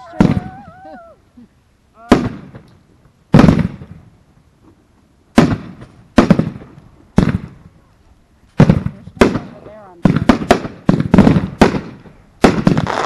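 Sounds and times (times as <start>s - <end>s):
fireworks booming and crackling: 0.0s - 0.9s, 2.0s - 4.2s, 5.3s - 7.8s, 8.5s - 13.0s.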